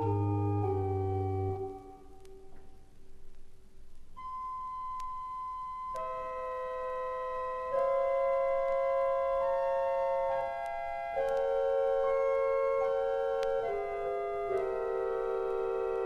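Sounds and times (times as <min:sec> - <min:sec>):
pipe organ chords: 0:00.0 - 0:02.6, 0:04.2 - 0:16.0
faint vinyl clicks: 0:10.6 - 0:11.5.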